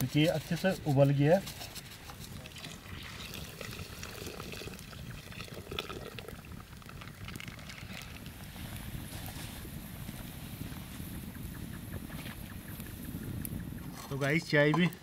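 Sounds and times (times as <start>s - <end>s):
wood fire crackling: 0.0s - 15.0s
tea bubbling at the boil: 0.1s - 15.0s.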